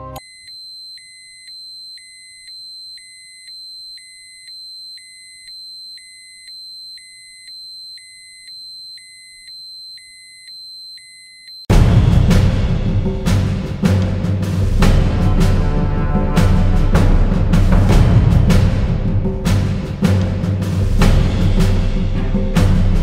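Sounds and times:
short electronic beeps: 0.1s - 11.7s.

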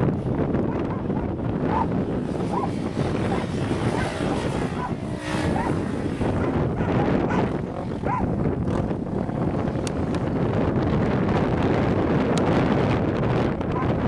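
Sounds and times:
distant quad engine: 0.0s - 14.0s
wind buffeting microphone: 0.0s - 14.0s.

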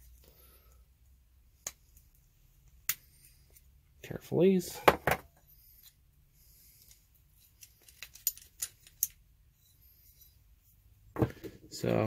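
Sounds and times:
metal ratchet parts clicking: 7.4s - 9.2s.

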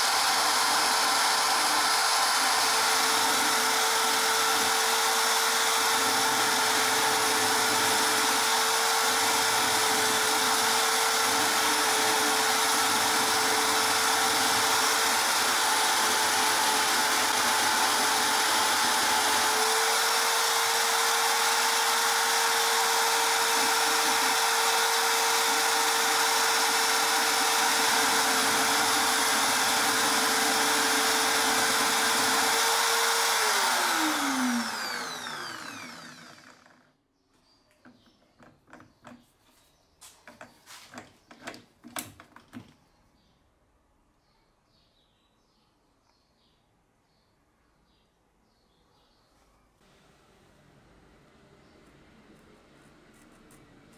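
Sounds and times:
electric drill motor whining: 0.0s - 36.9s.

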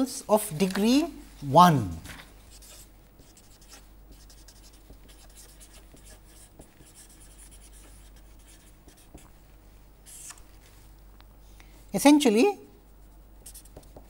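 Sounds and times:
marker pen scratching on paper: 2.4s - 9.4s, 10.0s - 10.4s, 12.9s - 14.0s.

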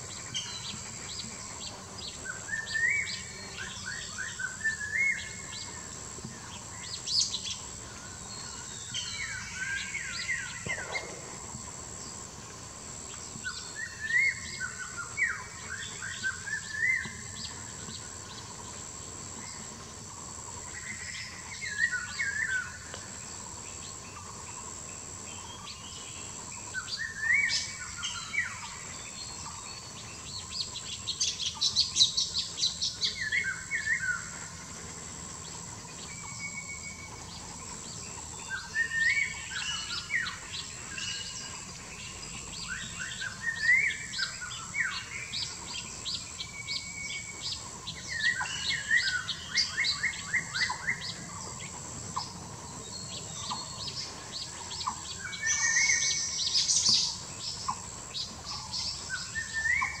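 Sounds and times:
songbird chirping: 0.1s - 12.3s.

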